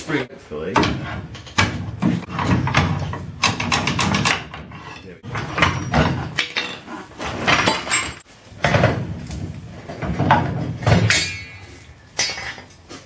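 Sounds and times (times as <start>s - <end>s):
heavy metal clanks: 0.8s - 9.1s
ringing metal clang: 11.0s - 12.6s.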